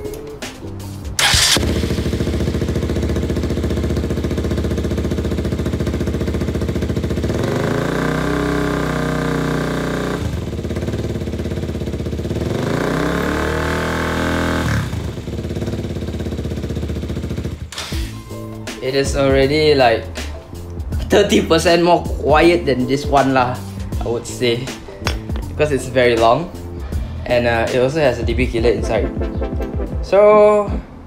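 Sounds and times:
motorcycle engine idling and revving: 0:00.8 - 0:20.0.

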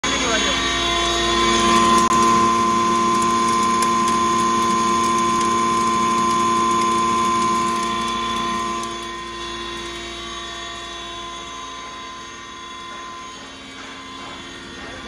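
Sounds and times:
mill machine whine: 0:00.0 - 0:15.0.

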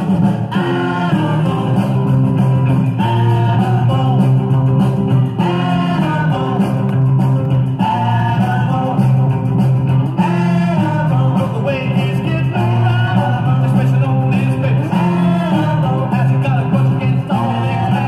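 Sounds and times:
person singing: 0:00.0 - 0:09.4, 0:10.0 - 0:18.0
surf rock record playing: 0:00.0 - 0:18.0.

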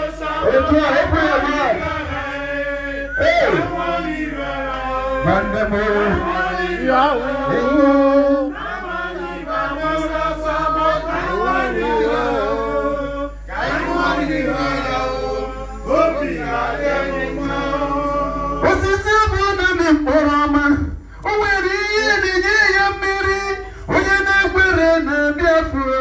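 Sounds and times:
men singing chant-like song: 0:00.0 - 0:19.1.

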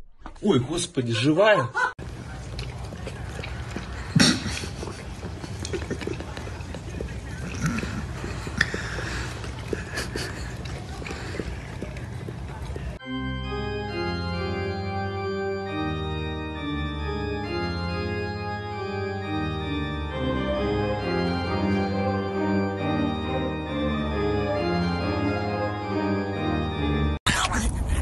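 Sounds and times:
organ chords: 0:13.0 - 0:27.2.

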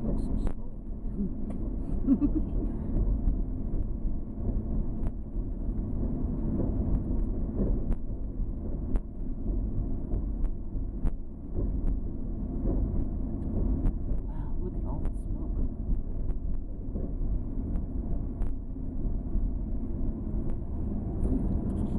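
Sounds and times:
car engine and tyres rumbling: 0:00.0 - 0:21.9.

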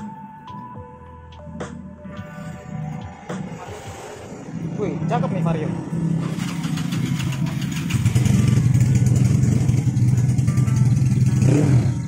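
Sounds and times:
motorcycle engine idling: 0:06.2 - 0:12.0.

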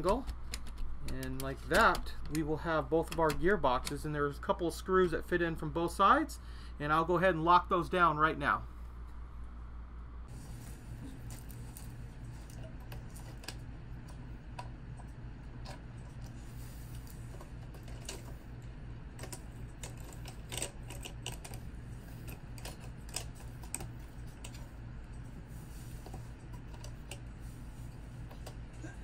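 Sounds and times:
steady low hum: 0:00.0 - 0:29.0
track links clicking and rattling: 0:17.3 - 0:24.7.

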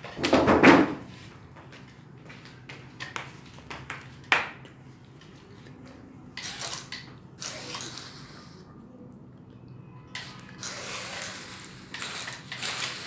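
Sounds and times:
flip-flop footsteps on tiles: 0:01.0 - 0:05.9.

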